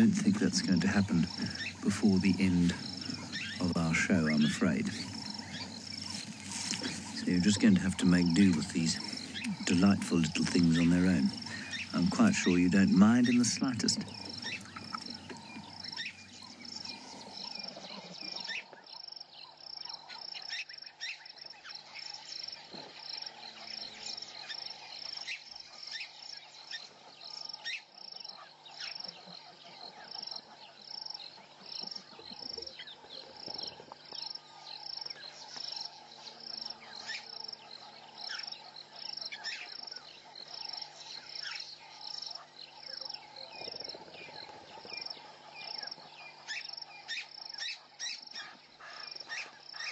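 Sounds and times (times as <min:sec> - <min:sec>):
pulsing insect chirp: 0:00.0 - 0:49.9
soft insect hum: 0:00.0 - 0:49.9.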